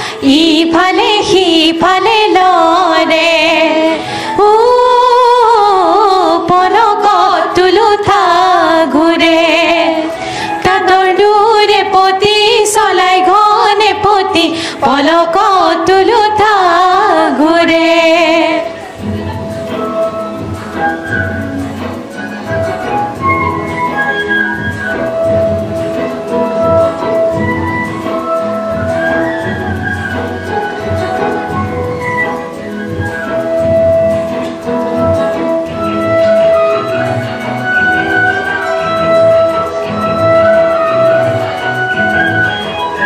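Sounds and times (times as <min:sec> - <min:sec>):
women singing together: 0:00.0 - 0:21.1.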